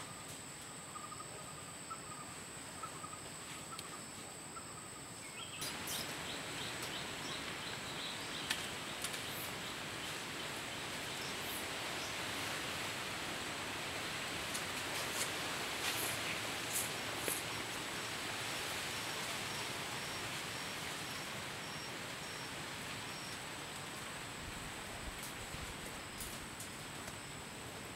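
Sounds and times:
faint chirping: 0.0 - 12.2
even hiss: 5.2 - 27.9.

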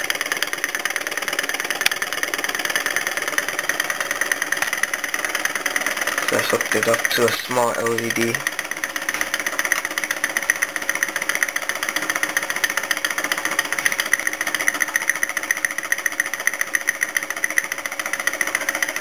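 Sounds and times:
fast mechanical ticking: 0.0 - 19.0
steady hum: 0.0 - 19.0.

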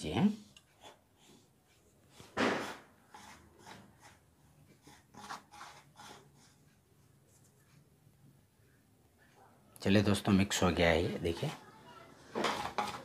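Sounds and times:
hand rubbing flour in metal bowl: 3.0 - 6.7.

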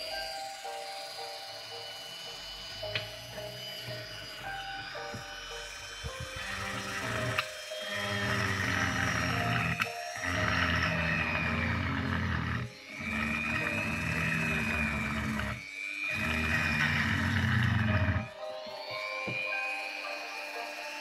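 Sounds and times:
rotary tool grinding rock: 2.8 - 18.4.

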